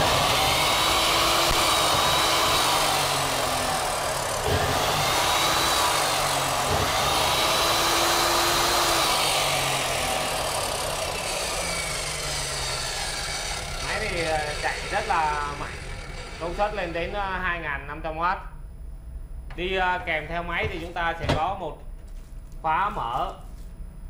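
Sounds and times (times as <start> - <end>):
cut-off saw whining: 0.0 - 17.2.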